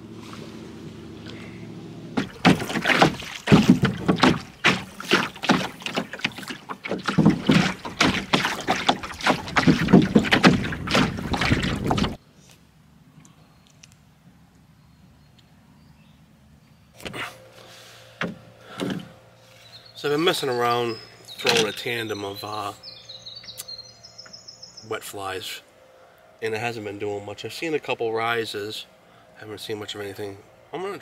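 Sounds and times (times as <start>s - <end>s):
water splashing against canoe hull: 2.2s - 12.2s, 21.4s - 21.8s.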